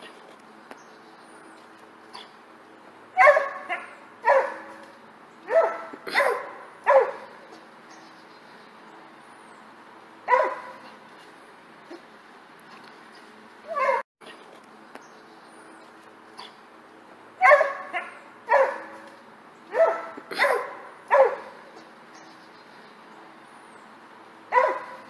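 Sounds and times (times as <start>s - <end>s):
small dog barking: 3.2s - 4.8s, 5.5s - 7.4s, 10.3s - 10.8s, 13.7s - 14.0s, 17.4s - 19.1s, 19.7s - 21.6s, 24.5s - 25.0s.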